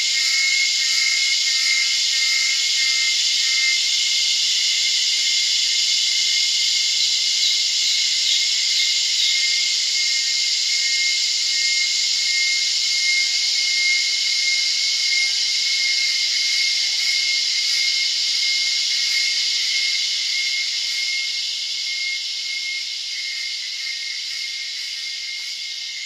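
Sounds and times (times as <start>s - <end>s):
cicada chorus drone: 0.0s - 26.0s.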